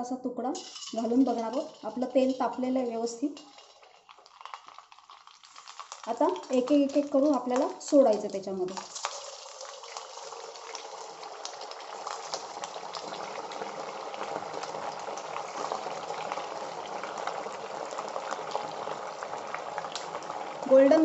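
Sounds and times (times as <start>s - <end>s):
hot oil sizzling and bubbling: 0.6s - 21.0s.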